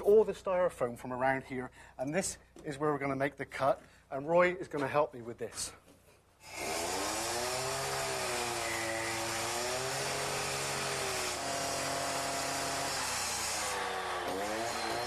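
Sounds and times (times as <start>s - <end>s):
disc cutter cutting concrete: 6.5s - 15.0s.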